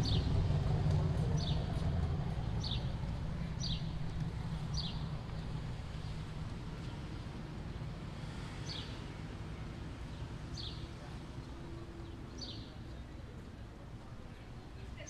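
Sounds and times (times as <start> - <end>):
low steady rumble: 0.0 - 8.5.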